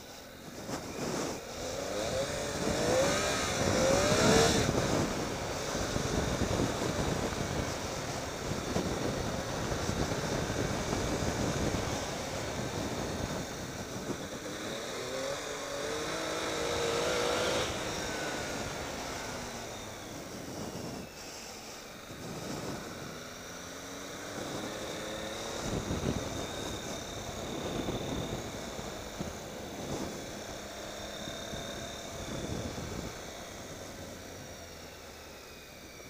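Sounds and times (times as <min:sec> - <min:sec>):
wind noise: 0:00.0 - 0:21.3, 0:22.0 - 0:34.8
motorcycle engine accelerating: 0:00.0 - 0:36.0.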